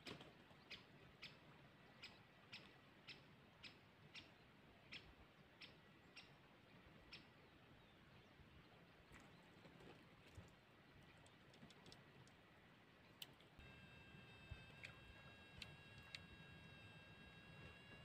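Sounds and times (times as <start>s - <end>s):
faint sharp ticking clicks: 14.2s - 16.3s.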